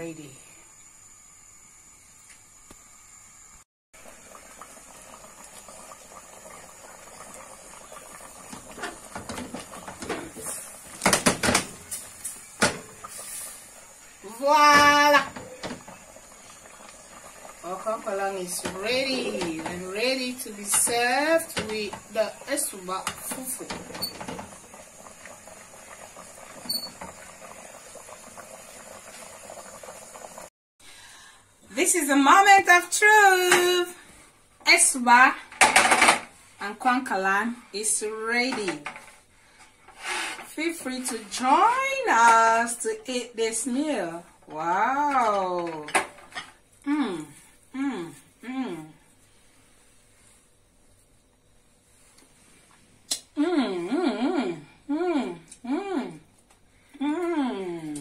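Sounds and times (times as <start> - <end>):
thick soup bubbling in a pot: 4.0 - 30.5.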